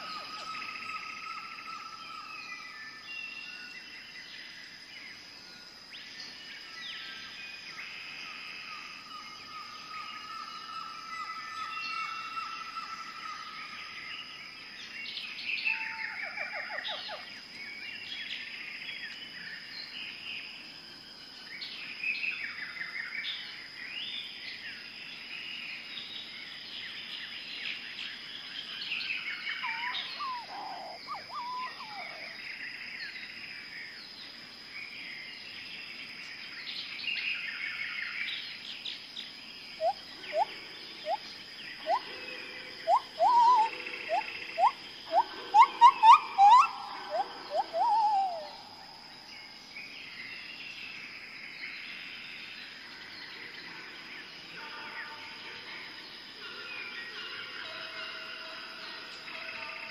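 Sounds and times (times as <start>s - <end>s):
upward-sweeping bird calls: 0.0s - 2.2s, 29.5s - 32.4s, 39.8s - 42.1s, 42.8s - 49.0s
birds chirping and trilling: 0.0s - 20.7s, 21.4s - 59.9s.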